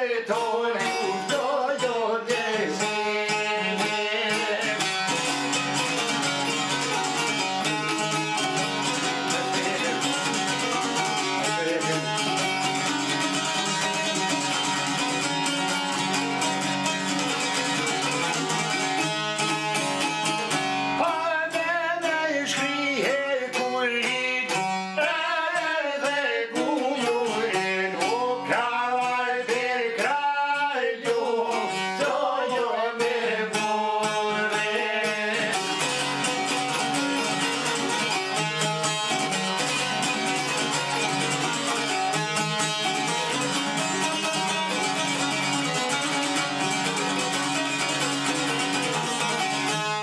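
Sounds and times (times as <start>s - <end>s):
men singing: 0.0s - 5.9s, 8.8s - 12.8s, 21.0s - 36.5s
plucked lutes playing: 0.0s - 50.0s.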